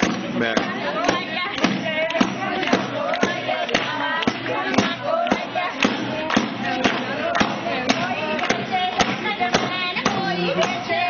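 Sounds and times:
stick beating a basket: 0.0 - 11.0
women singing: 0.0 - 11.0.

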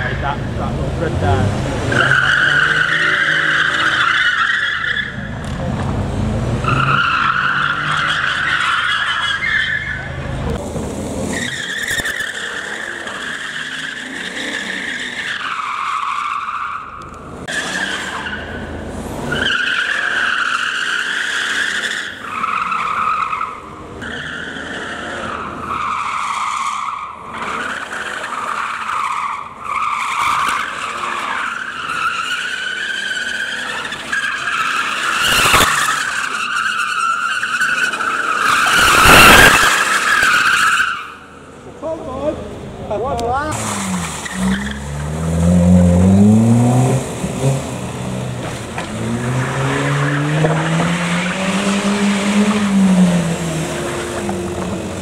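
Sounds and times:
car tyres squealing: 0.0 - 55.0.

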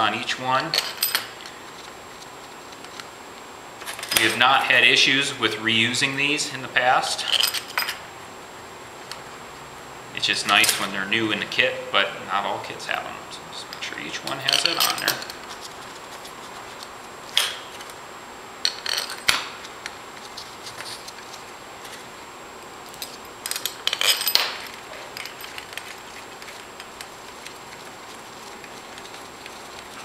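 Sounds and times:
metal bolts clinking: 0.7 - 1.5, 13.7 - 15.4, 22.9 - 26.0.

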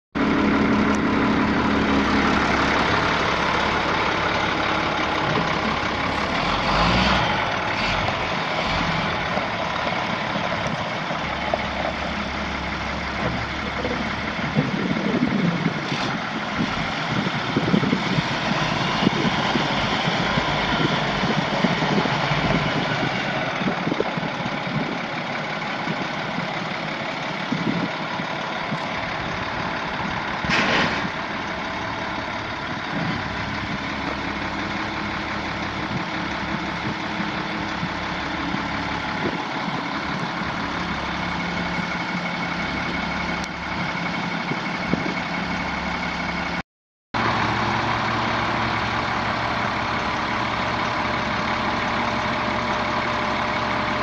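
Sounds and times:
diesel engine idling: 0.2 - 46.6, 47.2 - 54.0.

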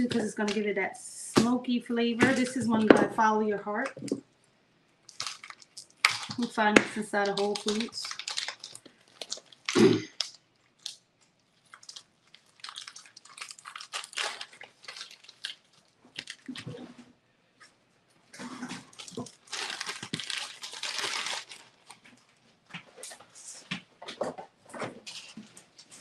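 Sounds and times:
plastic wrapper crinkling: 5.0 - 16.9, 18.7 - 22.5.

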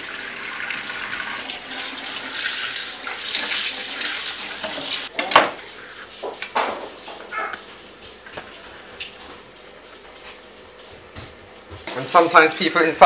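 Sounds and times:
tap water running into steel sink: 0.0 - 5.1.

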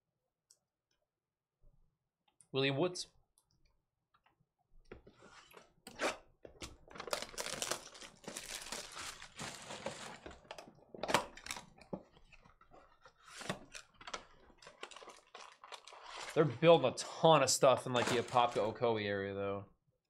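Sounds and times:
plastic wrap ripping: 6.9 - 10.3, 14.7 - 16.6
plastic wrap crinkling: 6.9 - 10.5, 14.5 - 16.4.

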